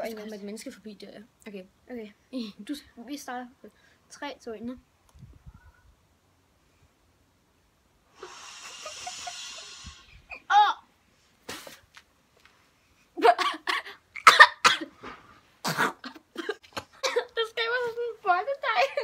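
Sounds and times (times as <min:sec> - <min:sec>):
breathy spluttering exhale: 0:08.2 - 0:10.2
person laughing: 0:08.3 - 0:10.0.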